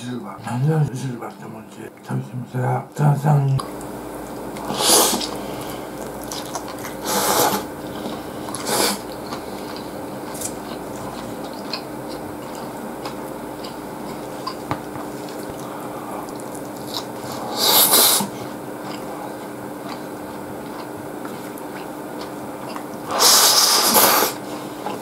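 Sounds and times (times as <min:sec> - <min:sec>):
person chewing food: 0:03.6 - 0:25.0
short noisy bursts: 0:04.0 - 0:06.0, 0:06.8 - 0:09.1.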